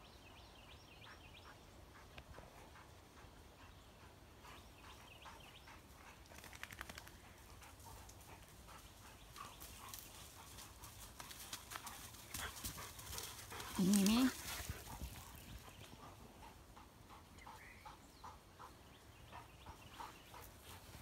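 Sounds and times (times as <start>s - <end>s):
dog panting: 1.0s - 6.4s, 7.1s - 21.0s.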